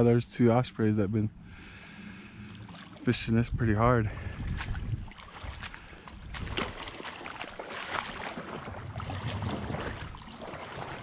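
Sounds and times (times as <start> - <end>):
wading through water: 1.4 - 11.0.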